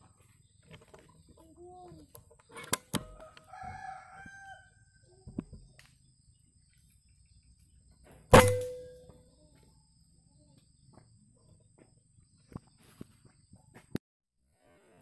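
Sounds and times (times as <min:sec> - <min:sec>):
air rifle shot: 0:08.3 - 0:08.9.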